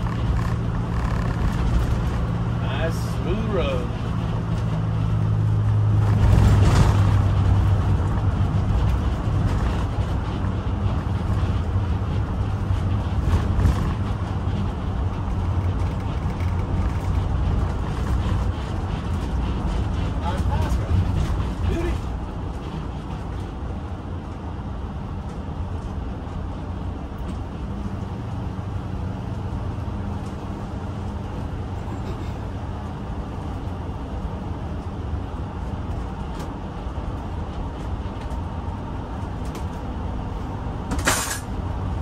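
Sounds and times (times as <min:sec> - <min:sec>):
engine and road rumble: 0:00.0 - 0:42.0.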